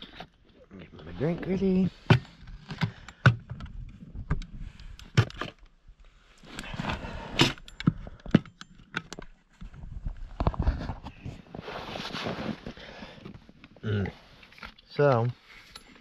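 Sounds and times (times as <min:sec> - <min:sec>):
rustling: 0:09.6 - 0:13.2.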